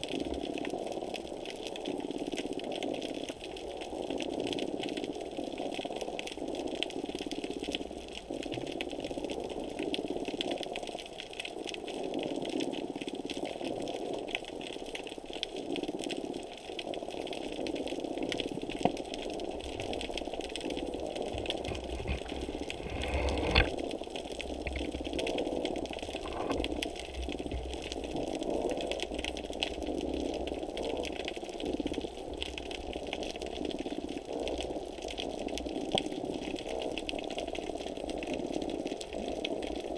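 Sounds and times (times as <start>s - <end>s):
crackle of ticks: 0.0s - 39.9s
muffled underwater churning: 0.0s - 39.9s.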